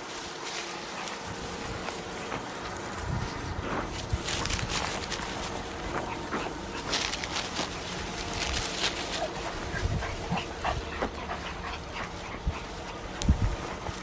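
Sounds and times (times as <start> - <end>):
rustling in grass: 0.0 - 14.0
puppies whimpering and squeaking: 3.3 - 14.0.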